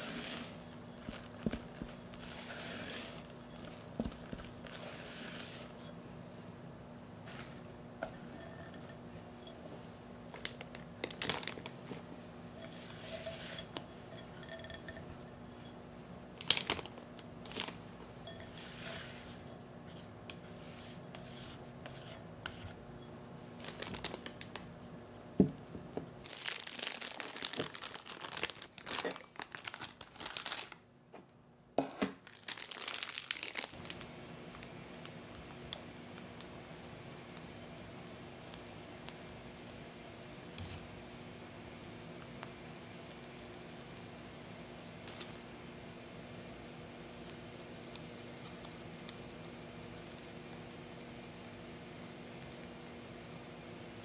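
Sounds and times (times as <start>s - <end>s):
plastic crinkling: 0.0s - 5.9s, 10.3s - 12.0s, 16.4s - 17.8s, 23.6s - 24.7s, 26.2s - 30.8s, 32.2s - 34.2s, 45.0s - 45.4s
spatula scraping glass bowl: 2.2s - 3.9s, 4.7s - 6.0s, 8.2s - 9.6s, 12.6s - 15.8s, 18.2s - 22.8s.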